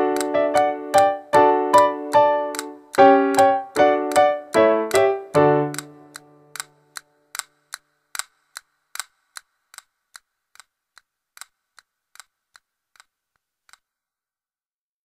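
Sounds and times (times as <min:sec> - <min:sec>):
piano chord: 0:00.0 - 0:06.6
clock ticking: 0:00.0 - 0:13.1.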